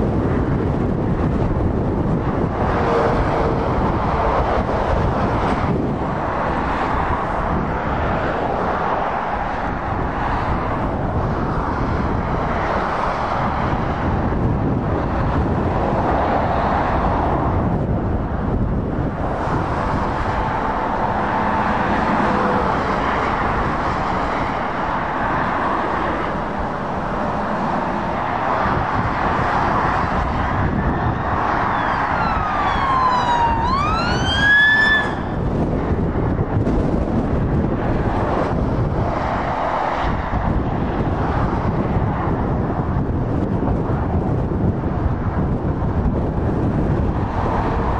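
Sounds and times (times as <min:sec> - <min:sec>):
traffic rushing past: 0:00.0 - 0:47.9
wind buffeting microphone: 0:00.0 - 0:47.9
siren sweeping in pitch: 0:31.7 - 0:35.4.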